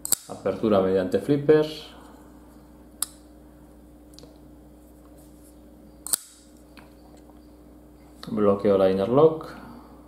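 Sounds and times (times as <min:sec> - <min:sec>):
knife blade clicking shut: 0:00.0 - 0:00.4, 0:06.1 - 0:06.4
knife blade snapping open: 0:00.0 - 0:00.4, 0:06.1 - 0:06.4.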